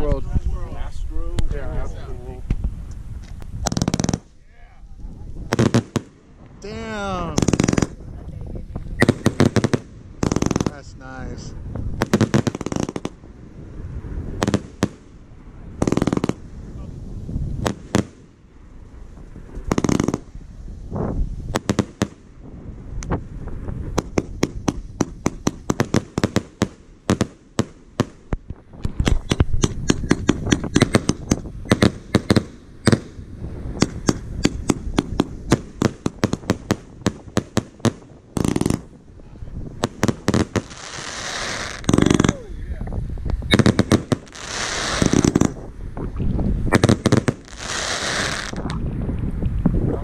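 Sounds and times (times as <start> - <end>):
fireworks hissing bursts: 2.4 - 8.2, 8.8 - 48.7
fireworks shots and bangs: 3.6 - 4.4, 5.4 - 8.2, 8.8 - 16.6, 17.5 - 18.5, 19.1 - 20.4, 21.4 - 39.0, 39.7 - 42.5, 43.4 - 48.8.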